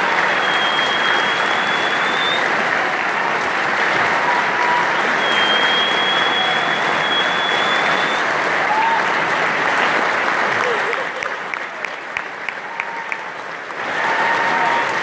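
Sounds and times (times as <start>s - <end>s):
high steady whistle: 0.0s - 2.5s, 4.8s - 8.2s
audience applauding: 0.0s - 15.0s.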